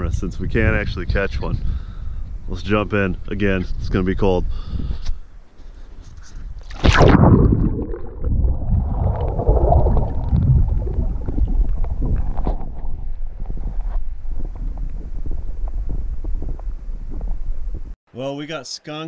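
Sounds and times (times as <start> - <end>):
muffled water sloshing and gurgling: 6.6 - 16.4
underwater rush of water: 6.7 - 13.6.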